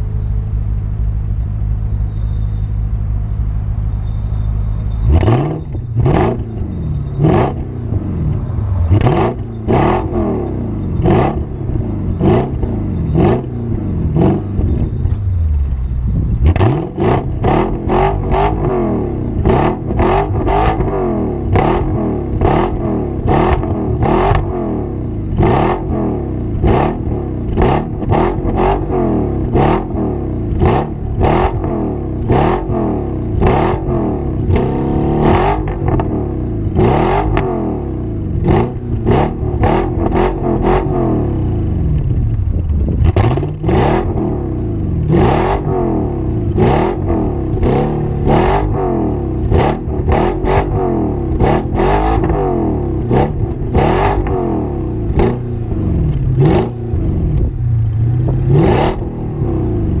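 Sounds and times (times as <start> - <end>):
car engine revving: 4.9 - 60.0.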